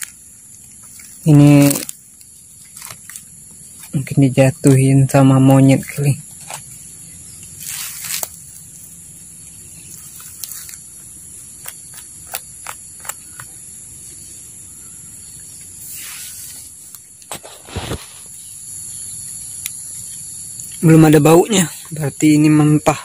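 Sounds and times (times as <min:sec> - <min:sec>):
rustling: 0:00.0 - 0:04.3, 0:05.6 - 0:14.5
insects droning: 0:00.0 - 0:23.0.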